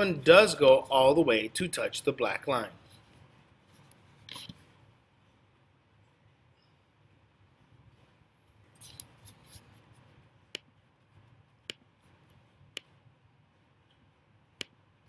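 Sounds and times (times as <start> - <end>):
soft scratchy rustle: 2.8 - 5.4, 7.7 - 10.2.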